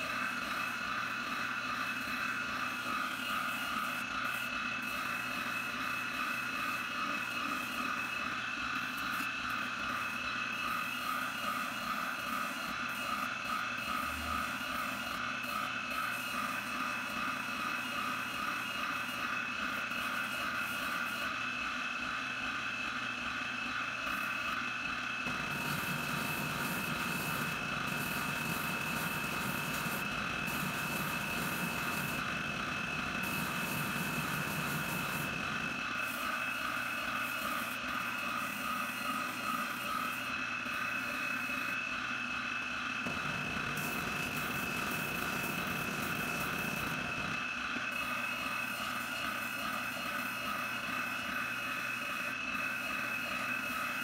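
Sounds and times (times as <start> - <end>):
spindle sander whining: 25.2 - 41.5, 42.9 - 50.0
wood sanding against drum: 25.3 - 35.6.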